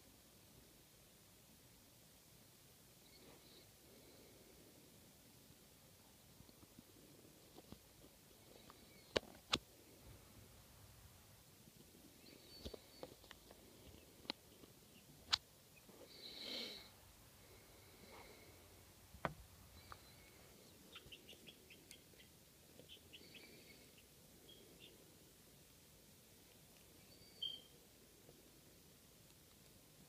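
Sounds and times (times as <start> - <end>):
chicks peeping: 12.1 - 15.9, 19.7 - 25.2
beaks pecking at feed: 17.5 - 29.9.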